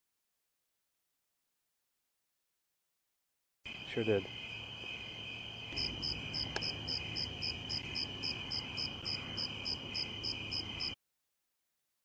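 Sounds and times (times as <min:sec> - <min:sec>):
crickets chirping: 0:03.7 - 0:11.0
high insect drone: 0:03.7 - 0:11.0.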